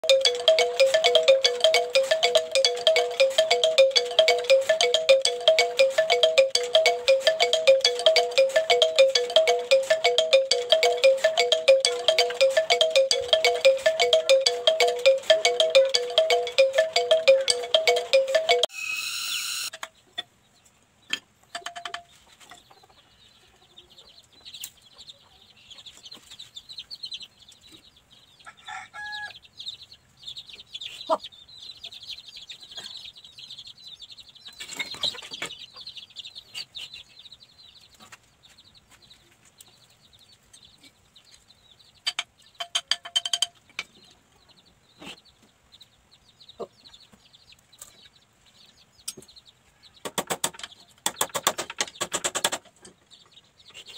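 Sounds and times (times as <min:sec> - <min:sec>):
chickens clucking: 0:19.9 - 0:33.3, 0:34.3 - 0:42.7, 0:43.6 - 0:53.9
wooden pieces clacking: 0:42.1 - 0:43.6.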